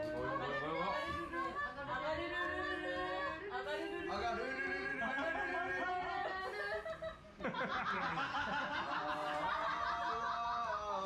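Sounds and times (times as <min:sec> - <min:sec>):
man laughing: 0:04.8 - 0:11.0.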